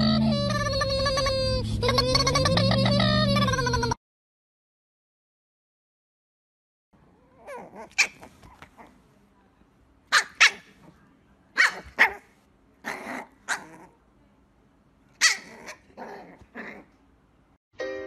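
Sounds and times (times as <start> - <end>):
puppy yapping: 7.3 - 9.0, 10.1 - 11.0, 11.6 - 14.0, 15.2 - 16.9.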